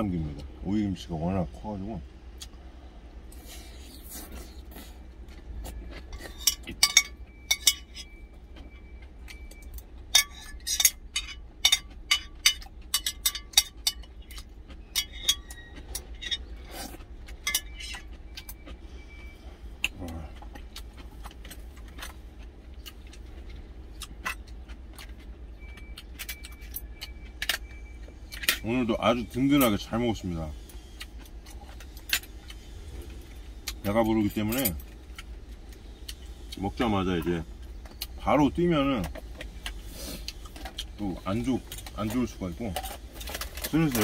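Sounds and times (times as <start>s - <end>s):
low steady hum: 0.0s - 44.0s.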